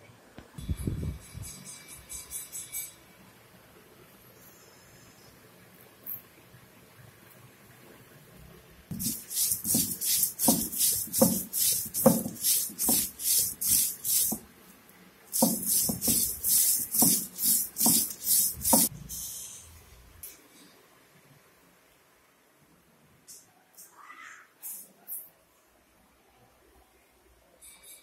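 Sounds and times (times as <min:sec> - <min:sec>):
stone roller grinding: 0:08.9 - 0:14.4, 0:15.4 - 0:18.9.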